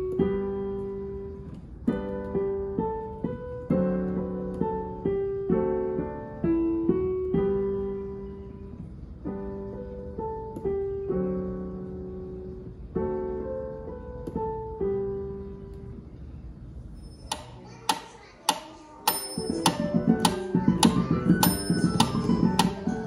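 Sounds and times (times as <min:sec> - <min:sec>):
digital piano melody: 0:00.0 - 0:16.0, 0:19.0 - 0:23.0.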